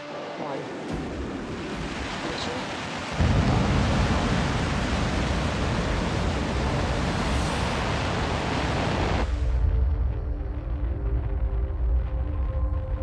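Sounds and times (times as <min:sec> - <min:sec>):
music: 0:00.0 - 0:13.0.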